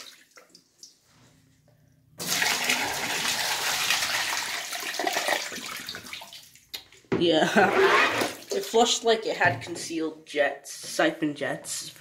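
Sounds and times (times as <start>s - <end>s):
toilet flush splashing water: 2.2s - 6.4s.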